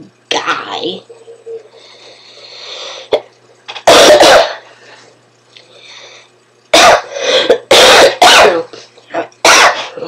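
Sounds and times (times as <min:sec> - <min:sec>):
woman coughing: 0:03.8 - 0:04.6, 0:06.8 - 0:08.8, 0:09.4 - 0:10.0.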